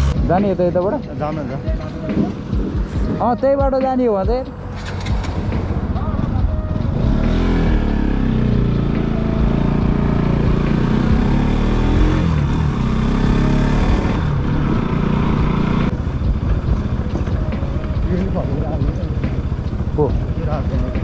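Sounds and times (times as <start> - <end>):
vehicle engine revving: 0.0 - 0.2, 6.8 - 17.6.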